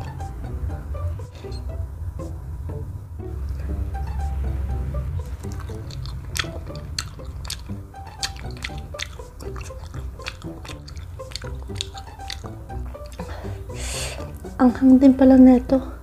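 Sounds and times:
background music: 0:00.0 - 0:16.0
chewing and lip-smacking: 0:05.2 - 0:14.6.

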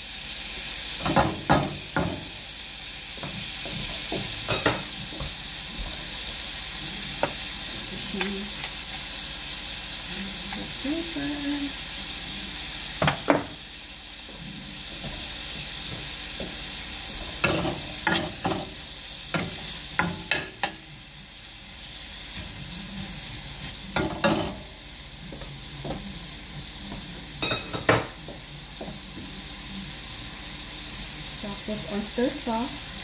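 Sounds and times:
meat and onions sizzling in wok: 0:00.0 - 0:33.0.

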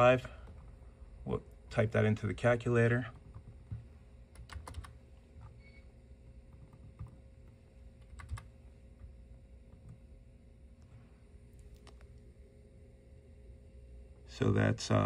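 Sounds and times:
computer keyboard taps: 0:08.0 - 0:08.5.

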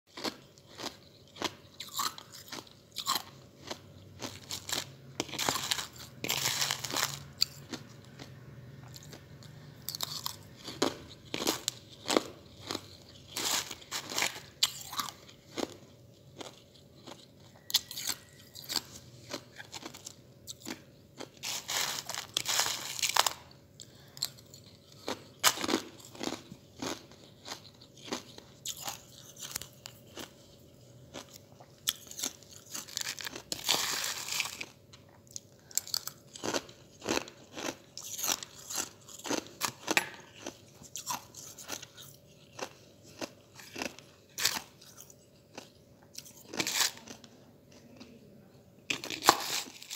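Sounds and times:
ice chips crunching in mouth: 0:00.1 - 0:47.3, 0:48.9 - 0:49.9.

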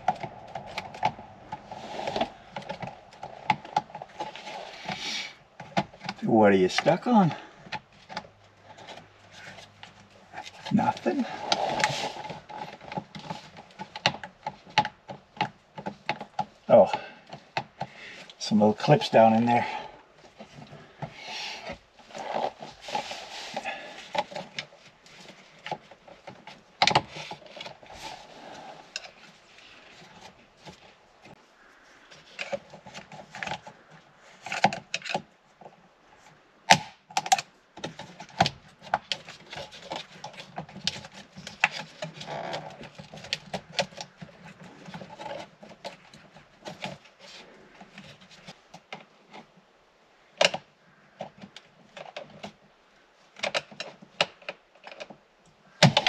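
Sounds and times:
quiet rubbing: 0:00.0 - 0:07.7, 0:08.3 - 0:14.6, 0:16.7 - 0:34.6.

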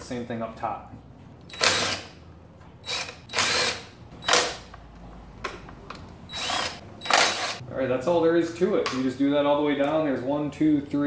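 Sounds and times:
cordless drill bursts: 0:01.5 - 0:02.1, 0:02.8 - 0:04.6, 0:06.3 - 0:07.6.

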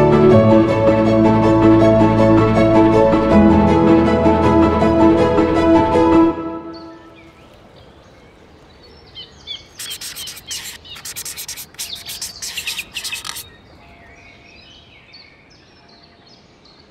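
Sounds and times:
small birds chirping: 0:07.2 - 0:15.2.

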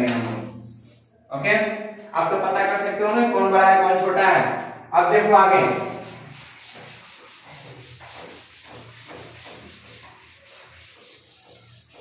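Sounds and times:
duster wiping chalk off blackboard: 0:05.6 - 0:12.0.

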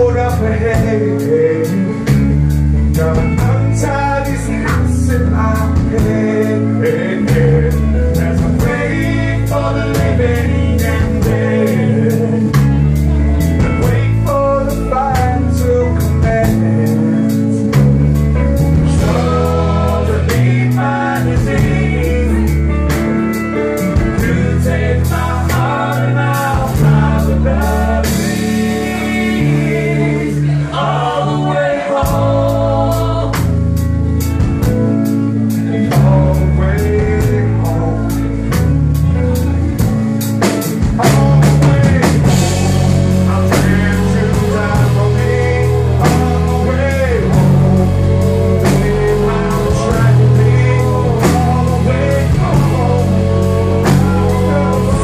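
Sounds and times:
bass notes: 0:00.0 - 0:55.0
drum kit beat: 0:00.0 - 0:55.0
electric guitar: 0:00.0 - 0:55.0
sung lead vocal: 0:00.0 - 0:55.0.

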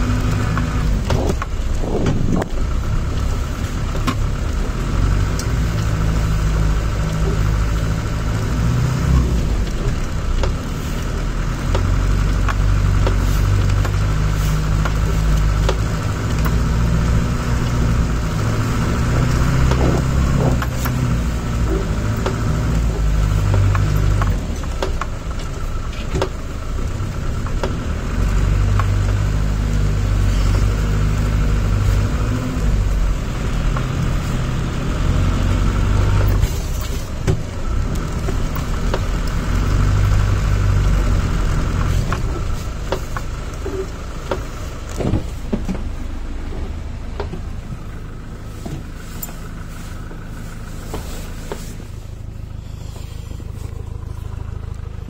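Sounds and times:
vehicle knocks and rattles: 0:00.0 - 0:52.5
vehicle engine droning: 0:00.0 - 0:55.0.

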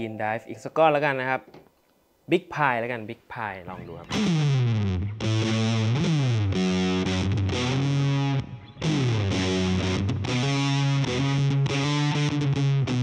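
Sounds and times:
distorted electric guitar: 0:03.7 - 0:13.0.

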